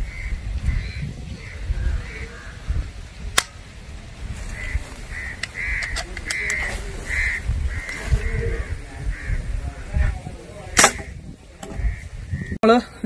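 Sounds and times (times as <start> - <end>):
bird cawing: 0.0 - 3.0, 4.5 - 10.0, 10.9 - 12.6.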